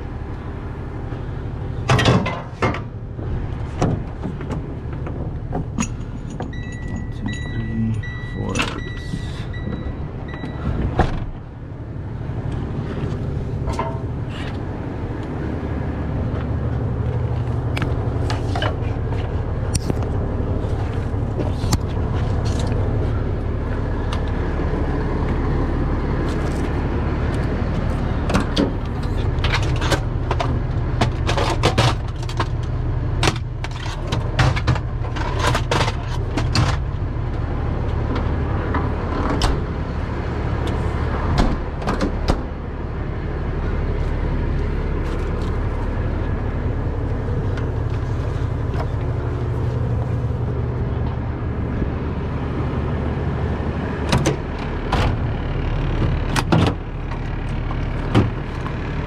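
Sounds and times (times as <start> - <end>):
diesel truck engine idling: 0.0 - 59.0
tow chain clanking: 5.0 - 10.8.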